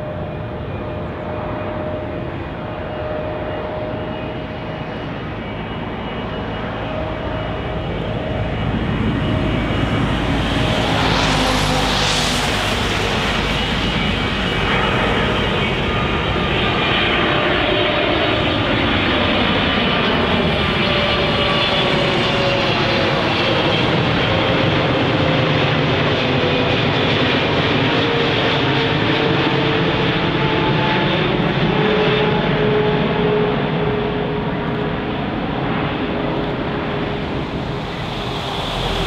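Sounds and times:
jet airliner roar passing overhead: 0.0 - 39.0.

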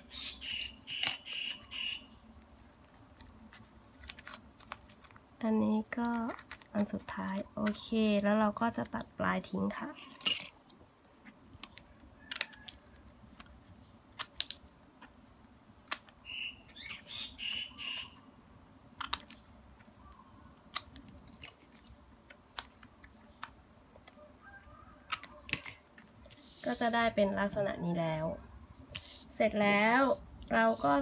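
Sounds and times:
ribbon rustling: 2.6 - 7.8, 25.1 - 27.6, 28.8 - 31.0.

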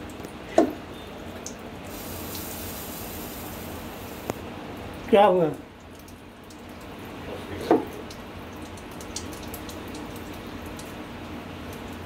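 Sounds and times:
hiss of liquid pumped through lance: 1.9 - 4.4.

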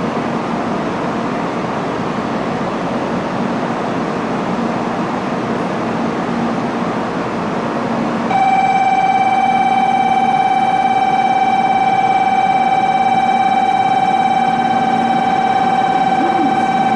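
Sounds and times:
train humming at platform: 0.0 - 16.9
electronic departure bell tone: 8.3 - 16.9.

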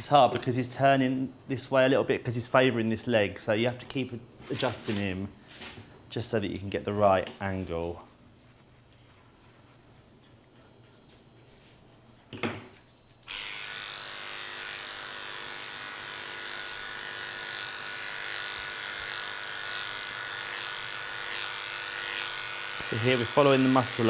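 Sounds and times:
electric clippers buzzing: 13.2 - 24.0.

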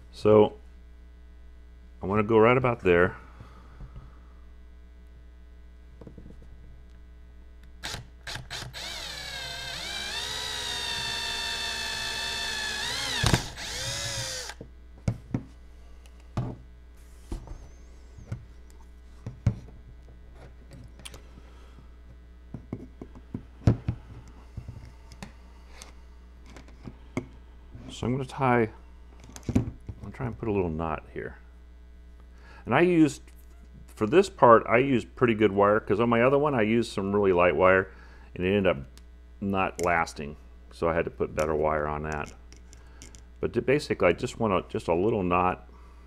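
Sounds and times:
cordless drill whining: 7.8 - 14.6.

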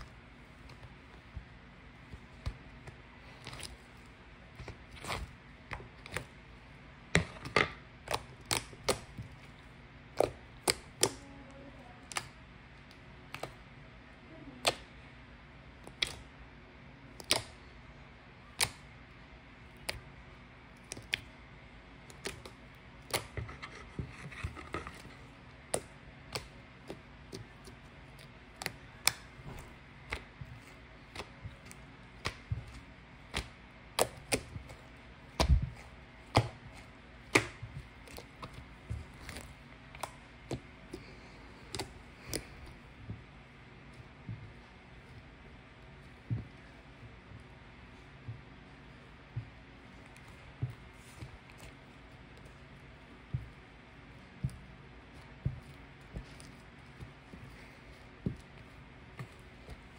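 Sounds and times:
faint steady hum: 0.0 - 59.9.

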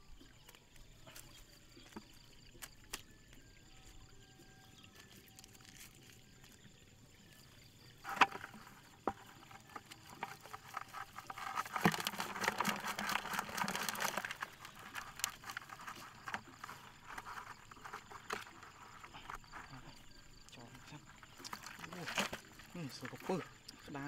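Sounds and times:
mesh net rustling: 8.0 - 19.8
small fish flapping and splashing: 8.2 - 20.2.

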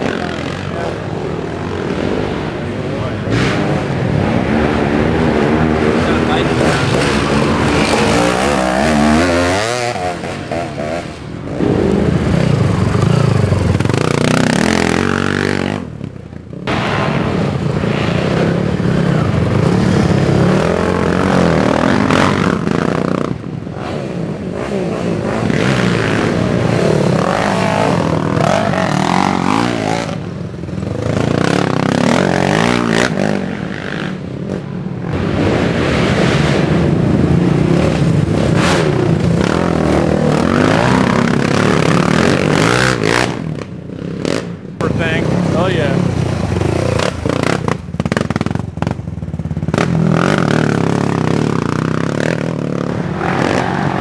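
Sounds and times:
quad engines revving: 0.0 - 54.0.

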